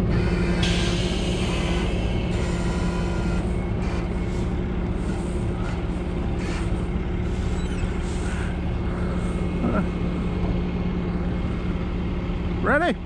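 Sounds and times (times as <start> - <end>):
heavy truck diesel engine: 0.0 - 13.0.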